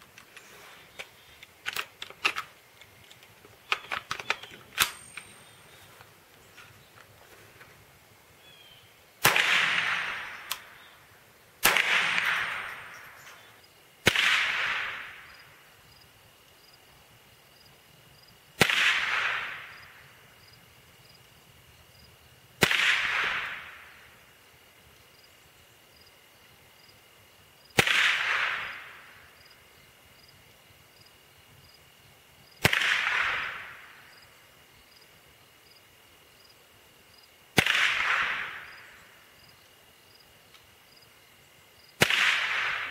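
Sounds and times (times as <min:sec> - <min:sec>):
rifle shots: 0:09.2 - 0:10.9, 0:11.6 - 0:15.4, 0:18.6 - 0:20.1, 0:22.6 - 0:24.1, 0:27.8 - 0:29.3, 0:32.6 - 0:34.1, 0:37.6 - 0:39.0, 0:42.0 - 0:42.9.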